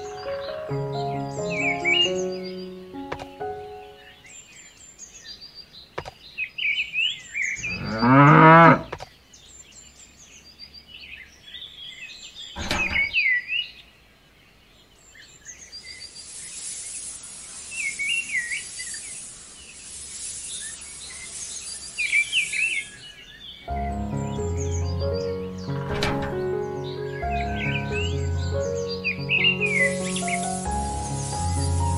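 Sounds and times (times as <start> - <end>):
birds chirping: 0.0 - 31.9
sharp click: 3.1 - 3.4, 12.6 - 13.1
cow mooing: 7.7 - 8.9
sand pouring out of a bowl: 16.2 - 22.7, 29.7 - 31.9.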